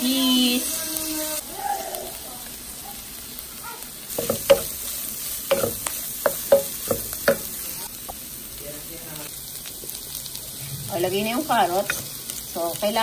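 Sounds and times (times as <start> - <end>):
food sizzling in a pan: 0.0 - 13.0
spatula knocking against pan: 4.2 - 4.8, 5.5 - 7.6.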